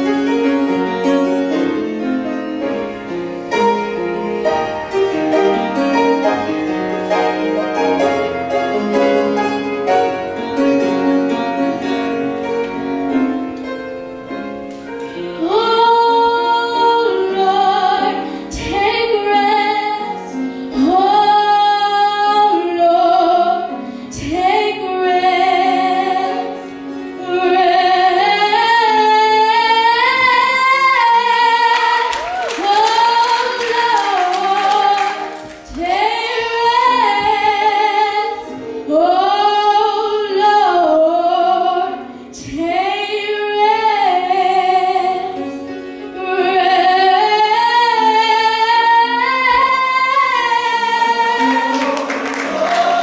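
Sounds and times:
slow piano playing: 0.0s - 53.0s
woman singing: 15.3s - 45.5s, 46.1s - 53.0s.

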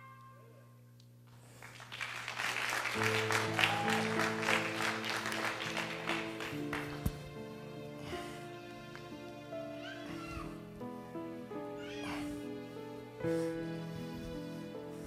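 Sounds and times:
congregation clapping: 1.6s - 7.4s.

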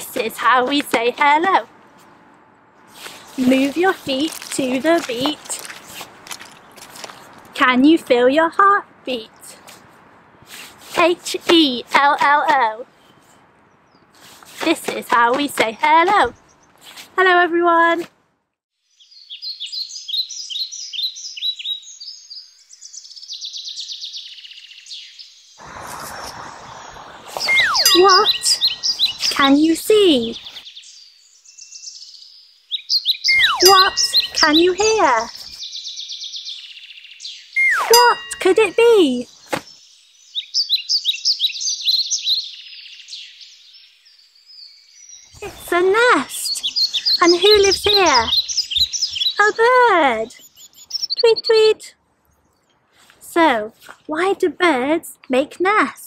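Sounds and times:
songbird chirping and trilling: 3.0s - 6.8s, 15.2s - 16.9s, 18.8s - 53.0s
wind rushing: 25.6s - 29.4s.

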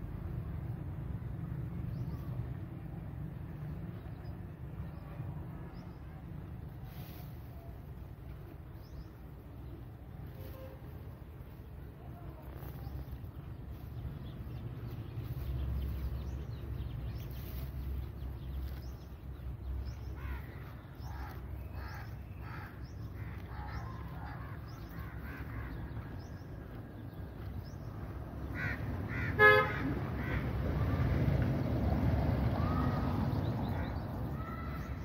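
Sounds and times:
low outdoor rumble: 0.0s - 35.0s
vehicle horn toot: 10.4s - 11.0s, 29.4s - 29.8s.

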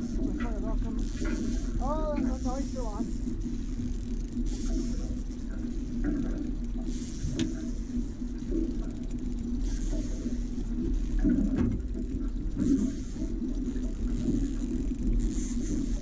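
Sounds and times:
outboard motor running: 0.0s - 16.0s.

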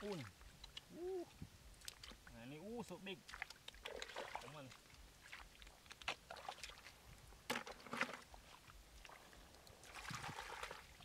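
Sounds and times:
hands splashing in muddy water: 3.2s - 8.3s, 9.0s - 11.0s.

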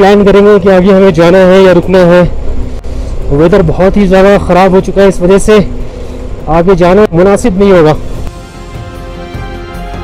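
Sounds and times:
background music with light beat: 8.3s - 10.0s.

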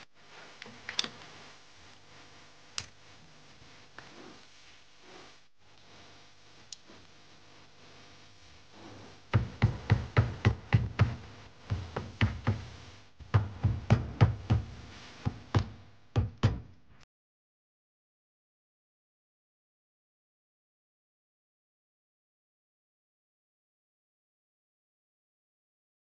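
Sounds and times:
hammer tapping on metal tool: 9.4s - 12.7s, 13.3s - 16.7s.

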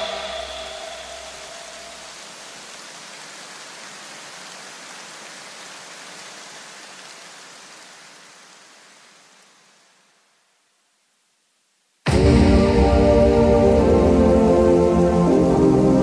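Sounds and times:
electronic music: 0.0s - 2.1s
steady rushing hiss: 0.0s - 16.0s.

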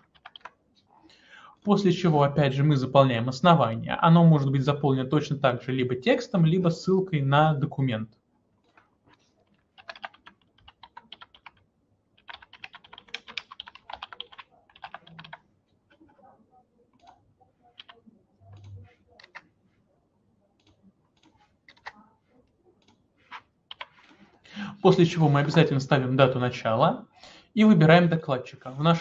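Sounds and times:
typing on computer keyboard: 0.0s - 0.6s, 8.7s - 16.1s, 16.9s - 19.5s, 20.6s - 22.0s, 22.8s - 24.2s.

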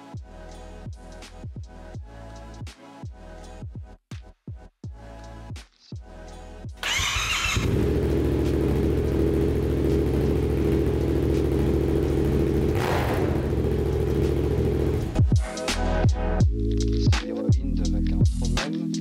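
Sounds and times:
motorcycle engine starting and idling: 6.8s - 15.4s.

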